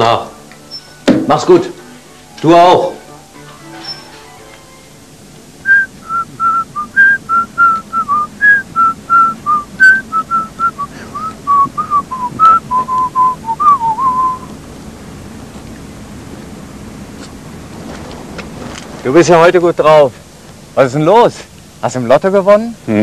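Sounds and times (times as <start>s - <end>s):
man whistling a tune: 5.6s - 14.5s.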